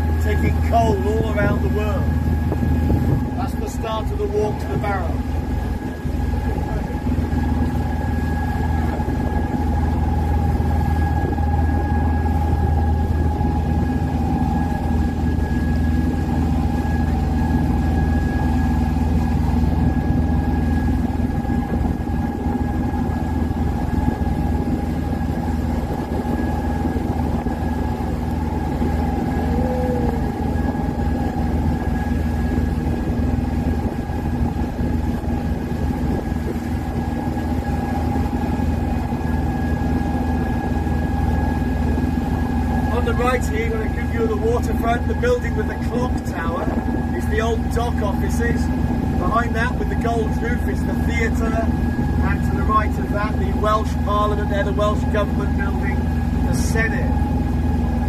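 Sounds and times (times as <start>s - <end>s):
boat engine humming and whining: 0.0s - 58.0s.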